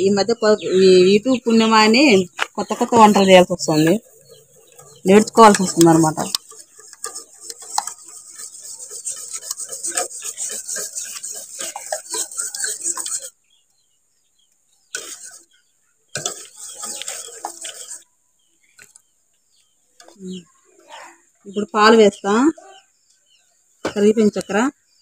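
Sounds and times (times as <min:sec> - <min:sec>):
wire whisk scraping a metal pot: 0:02.8 - 0:13.4, 0:14.9 - 0:18.1.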